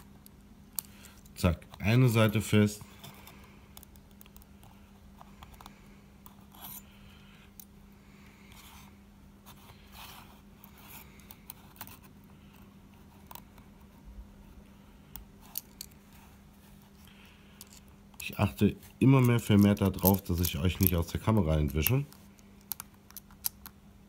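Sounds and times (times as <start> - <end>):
low steady hum: 0.0 - 24.0
metal tools clicking and scraping: 19.0 - 22.1.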